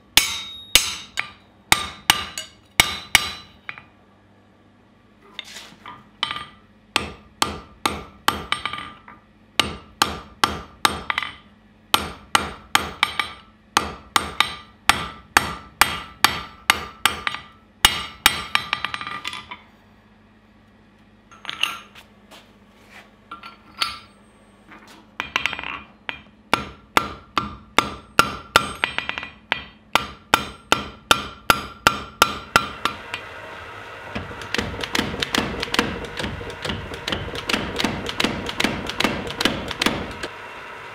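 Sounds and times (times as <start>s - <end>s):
hammer striking steel on anvil: 0.0s - 3.9s, 6.2s - 19.6s, 25.2s - 33.3s, 34.1s - 40.3s.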